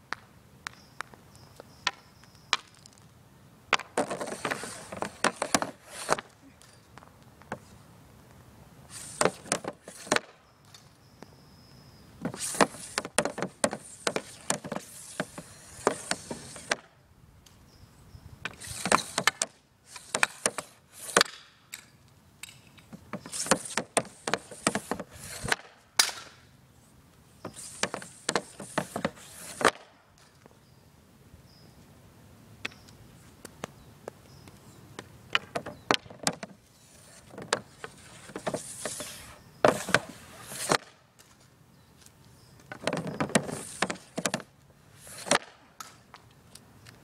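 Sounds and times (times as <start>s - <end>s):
hockey stick striking pucks: 1.8s - 2.9s, 3.7s - 6.8s, 8.9s - 10.4s, 12.2s - 16.9s, 18.5s - 21.9s, 22.5s - 26.4s, 27.4s - 29.9s, 35.4s - 41.0s, 42.7s - 46.1s
hockey stick scraping plastic board: 3.8s - 6.4s, 8.9s - 10.9s, 12.2s - 16.8s, 18.5s - 21.5s, 22.5s - 26.4s, 27.4s - 30.4s, 35.4s - 41.4s, 42.6s - 46.0s.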